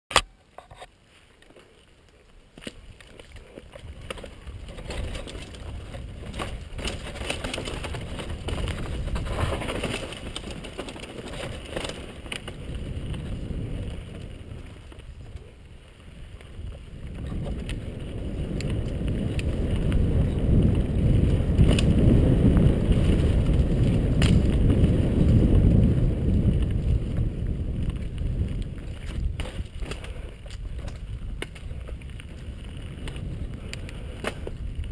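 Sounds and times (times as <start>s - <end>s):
bike tyre noise: 0.4s - 34.9s
bike rattling over bumps: 2.5s - 34.9s
wind rushing on microphone: 11.3s - 34.9s.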